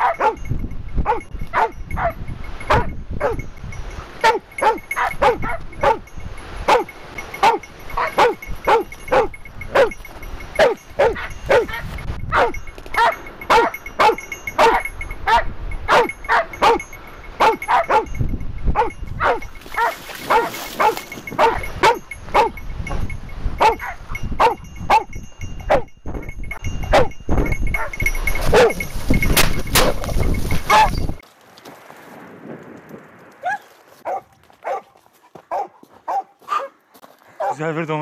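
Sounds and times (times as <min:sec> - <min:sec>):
dog barking: 0:00.0 - 0:00.5, 0:01.1 - 0:03.4, 0:04.2 - 0:06.0, 0:06.7 - 0:10.0, 0:10.6 - 0:18.1, 0:18.8 - 0:22.6, 0:23.6 - 0:25.1, 0:26.9 - 0:27.2, 0:27.8 - 0:28.8, 0:30.7 - 0:30.9, 0:33.4 - 0:36.8, 0:37.4 - 0:37.6.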